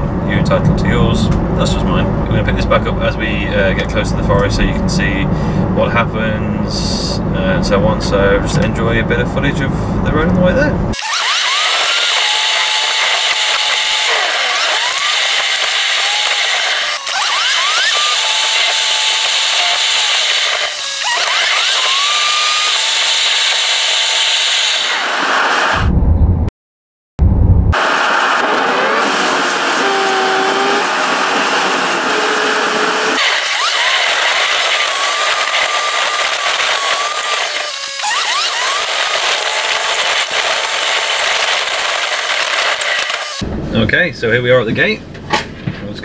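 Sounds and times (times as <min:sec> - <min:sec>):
vehicle road and engine noise: 0:00.0 - 0:11.0, 0:27.7 - 0:33.6, 0:39.2 - 0:46.0.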